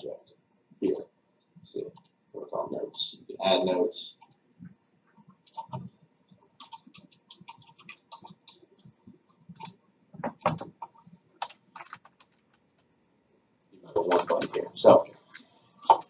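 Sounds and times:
keyboard keystrokes: 11.4 - 12.6, 14.1 - 14.7.

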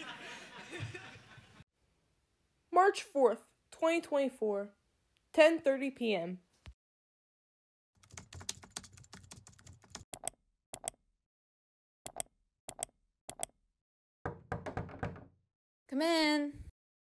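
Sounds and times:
typing on computer keyboard: 8.0 - 11.0.

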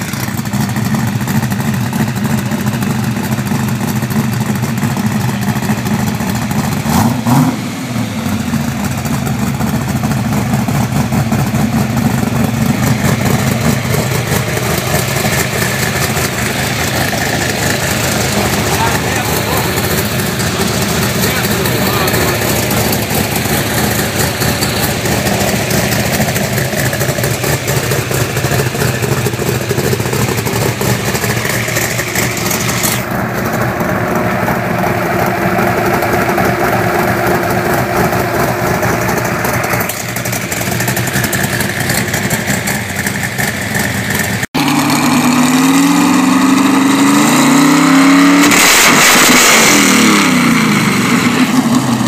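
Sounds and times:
car engine idling: 0.0 - 52.0
car engine revving: 0.0 - 52.0.

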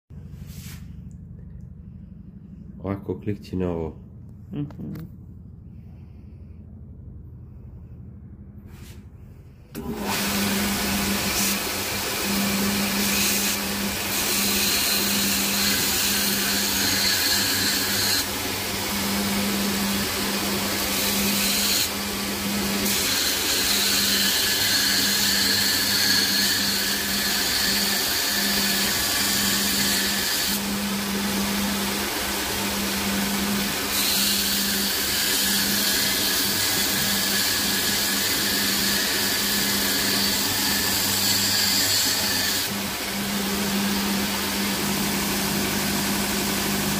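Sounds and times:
belt grinder motor hum: 9.8 - 46.9
chisel grinding on abrasive belt: 11.3 - 19.0, 19.7 - 30.7, 31.8 - 42.7.

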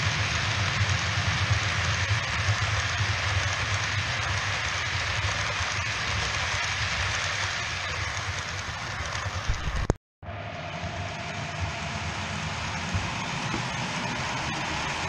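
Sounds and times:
model train wheels rattling: 0.0 - 9.9
low hum: 0.0 - 15.0.

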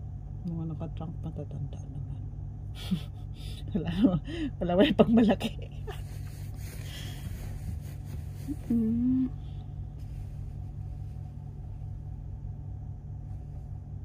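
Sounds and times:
low rumbling hum: 0.0 - 14.0
person humming mm: 8.4 - 9.6.

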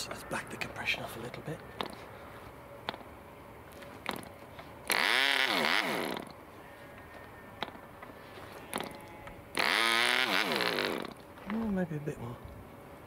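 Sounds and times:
propeller flicked by hand clicks: 3.7 - 5.0.

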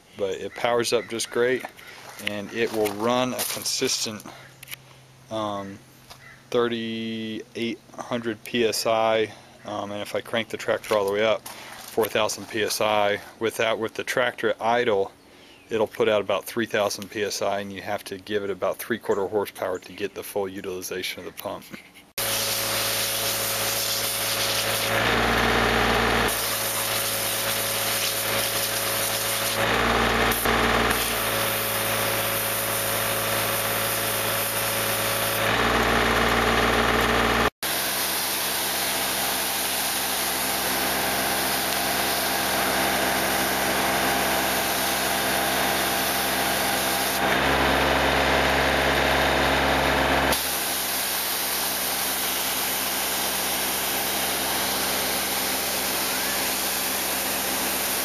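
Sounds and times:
pressure washer jet hissing: 22.2 - 47.6, 50.3 - 58.0
tractor engine running: 22.2 - 51.4.

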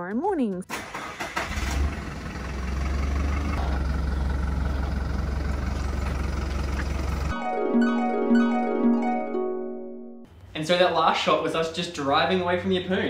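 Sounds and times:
truck engine rumbling: 0.7 - 7.4.

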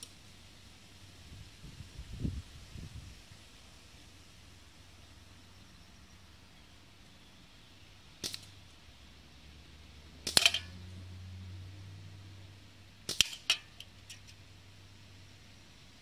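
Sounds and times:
sharp knocks and snaps: 8.2 - 8.5, 10.2 - 10.7.

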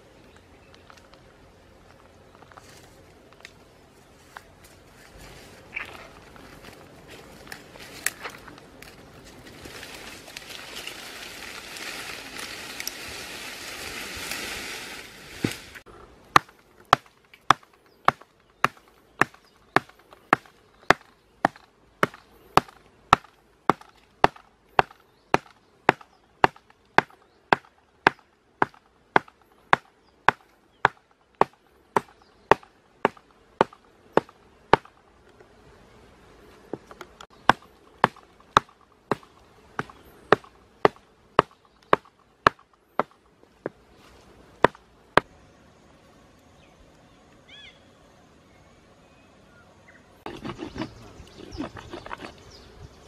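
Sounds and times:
leafy branches rustling: 0.0 - 21.5, 35.6 - 45.3
blade chopping wood: 16.3 - 35.0, 36.8 - 43.8.

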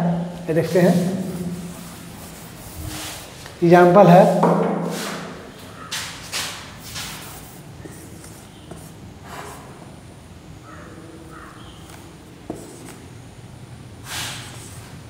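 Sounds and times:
marker writing on whiteboard: 4.9 - 10.0, 10.7 - 13.2, 14.1 - 15.0.

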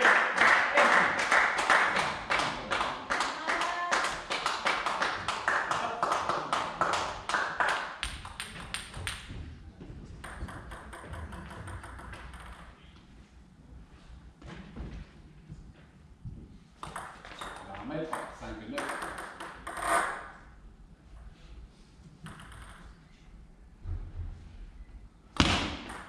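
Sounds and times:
rhythmic clapping: 0.0 - 9.4.

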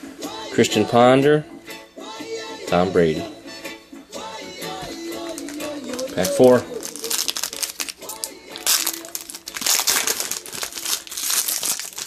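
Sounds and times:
foil wrapper crinkling: 5.0 - 12.0.

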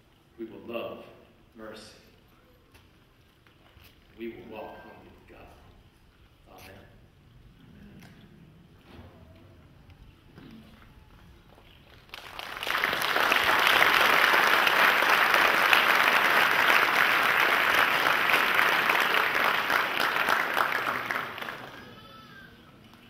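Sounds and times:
crowd applauding: 11.9 - 22.4.

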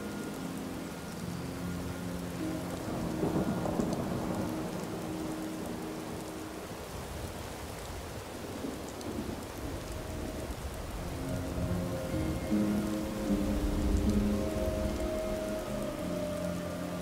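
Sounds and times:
faint steady tones: 0.0 - 7.2, 9.1 - 17.0
rain-like hiss: 0.0 - 17.0.

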